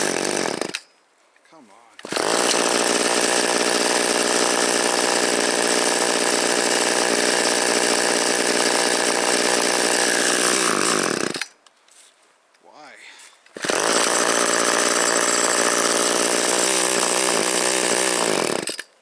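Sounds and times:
chainsaw running: 0.0s - 0.8s, 2.0s - 11.5s, 13.5s - 18.9s
starter cord pull: 2.0s - 2.7s.

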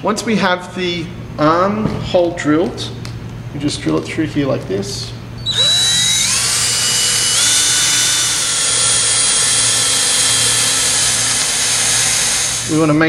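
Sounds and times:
power drill drilling into plastic: 5.4s - 12.7s.

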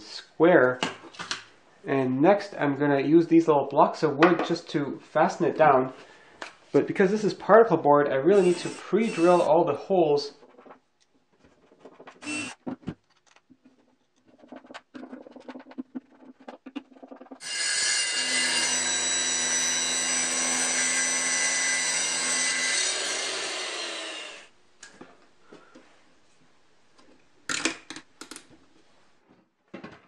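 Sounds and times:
circular saw running: 8.4s - 9.5s, 12.2s - 12.6s, 17.4s - 24.5s
saw winding down: 8.4s - 9.5s, 12.2s - 12.6s, 17.4s - 24.5s.

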